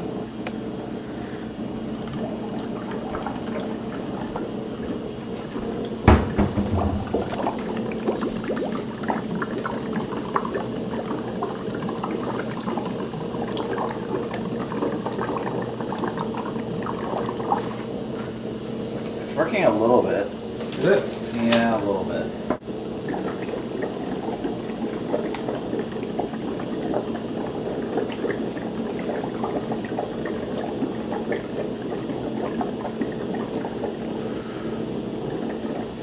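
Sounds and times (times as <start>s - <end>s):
bubbling through a straw: 0.0s - 1.0s, 1.6s - 19.2s, 22.8s - 36.0s
sharp knock: 6.1s - 7.1s.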